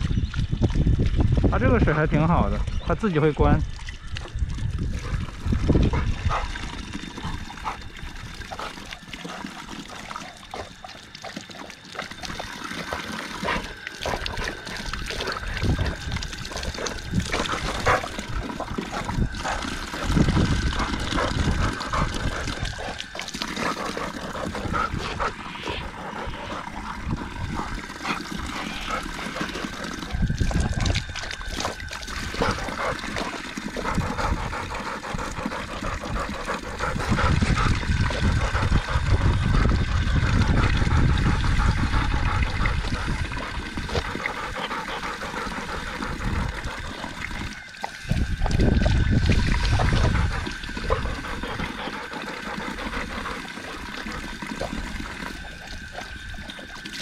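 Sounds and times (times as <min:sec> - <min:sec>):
dog lapping water: 0:00.0 - 0:57.0
water trickling from tap: 0:02.3 - 0:57.0.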